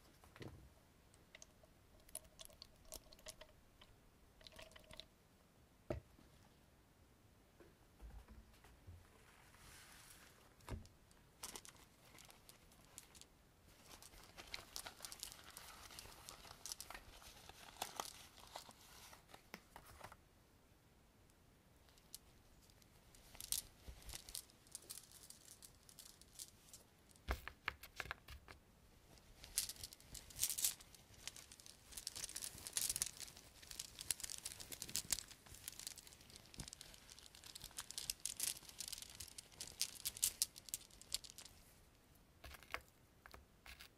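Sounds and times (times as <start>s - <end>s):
crinkling of handled object: 9.6s - 20.2s, 21.9s - 28.2s, 29.1s - 43.9s.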